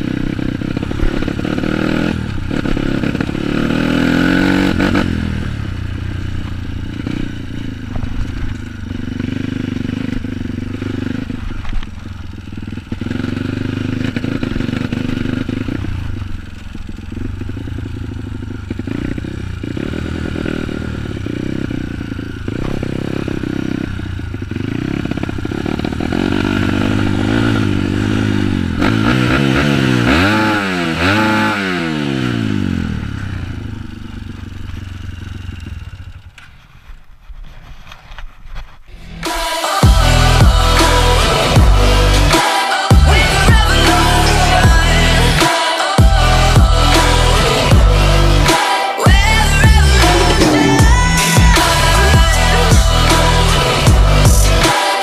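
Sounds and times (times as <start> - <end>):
dirt bike engine revving: 0.0 - 37.1, 38.9 - 55.0.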